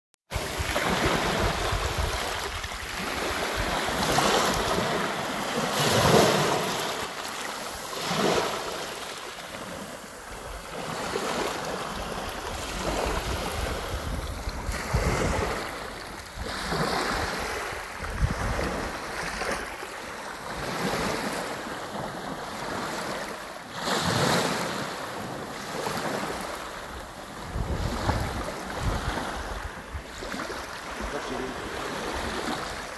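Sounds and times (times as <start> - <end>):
sea waves breaking: 0.3 - 32.9
wind rumbling on microphone: 0.4 - 5.1, 11.8 - 19.6, 27.3 - 31.1.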